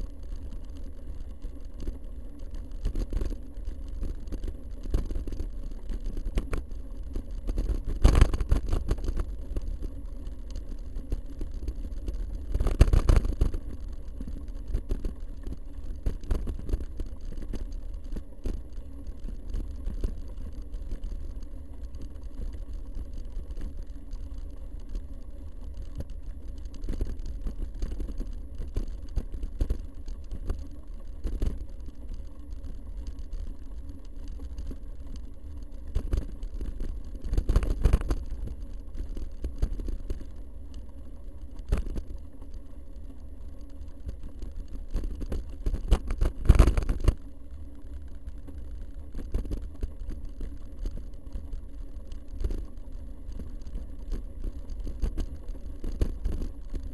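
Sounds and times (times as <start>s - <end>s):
low wind rumble: 0.0s - 56.9s.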